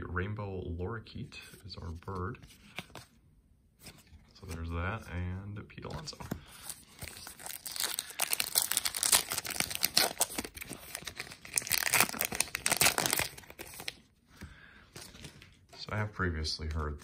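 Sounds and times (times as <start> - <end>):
foil wrapper crinkling and tearing: 7.0 - 14.0.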